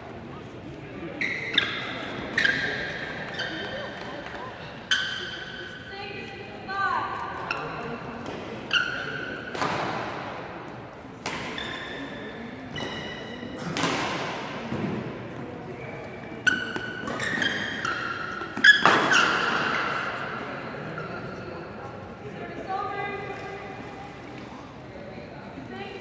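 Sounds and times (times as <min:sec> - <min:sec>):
shoes squeaking on court: 0:01.1 - 0:05.9, 0:11.4 - 0:13.7, 0:15.7 - 0:20.2
racket hitting shuttlecock: 0:07.4 - 0:10.4, 0:11.2 - 0:12.2, 0:12.8 - 0:15.1, 0:16.5 - 0:20.3.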